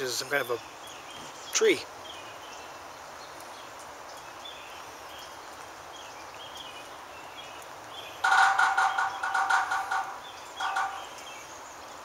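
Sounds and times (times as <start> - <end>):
steady hiss: 0.0 - 12.0
faint high bird chirps: 8.1 - 11.6.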